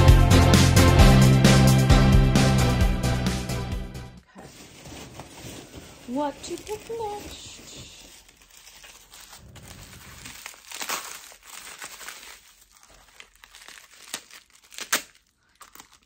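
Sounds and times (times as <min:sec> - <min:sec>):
crinkly packaging torn open: 0:06.5 - 0:16.0.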